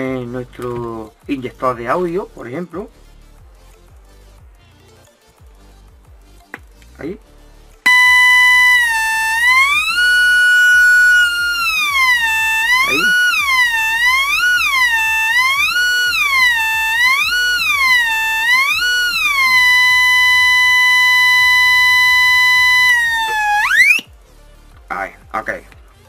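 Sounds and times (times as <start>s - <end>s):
buzzy test tone sweeping pitch: 7.9s - 24.1s.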